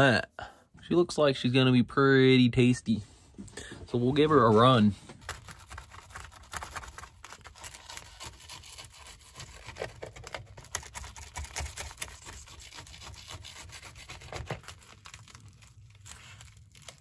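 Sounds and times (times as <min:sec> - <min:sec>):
knife scraping paper plate: 0:05.6 - 0:14.7
knife sawing through tortilla: 0:05.6 - 0:15.3.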